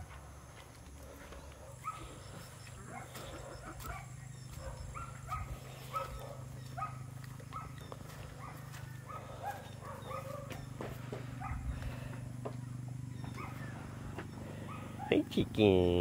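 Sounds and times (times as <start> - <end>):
steady low hum: 0.0 - 16.0
dog barking: 1.7 - 10.7, 11.4 - 11.8, 13.3 - 13.8, 14.5 - 15.2.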